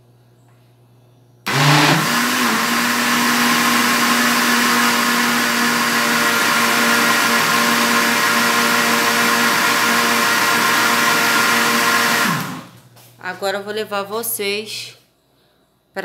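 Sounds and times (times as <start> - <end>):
blender motor whining: 1.5 - 12.8.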